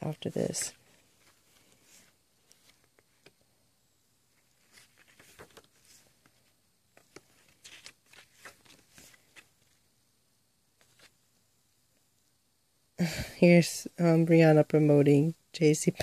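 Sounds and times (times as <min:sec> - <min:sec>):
paper booklet rustling: 0:00.0 - 0:03.6, 0:04.2 - 0:09.9, 0:10.8 - 0:11.3.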